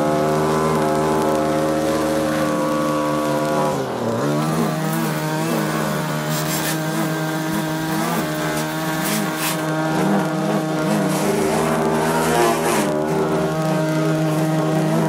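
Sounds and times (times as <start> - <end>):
string trimmer cutting grass: 0.0 - 15.0.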